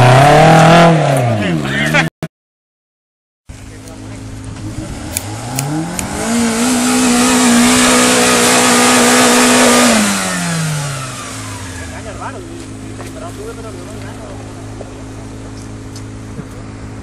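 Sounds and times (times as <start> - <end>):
engine revving under load: 0.0 - 1.6, 4.5 - 16.3.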